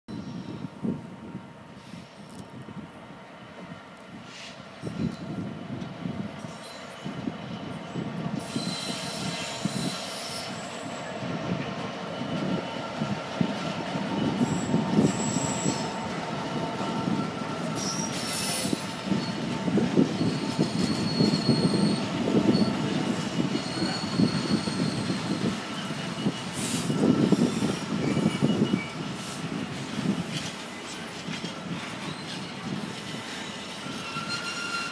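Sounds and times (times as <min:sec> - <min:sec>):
train wheels rumbling on rails: 0:00.1 - 0:34.9
high-pitched wheel squeals: 0:06.4 - 0:11.4, 0:14.0 - 0:16.2, 0:16.8 - 0:29.0, 0:31.5 - 0:34.9.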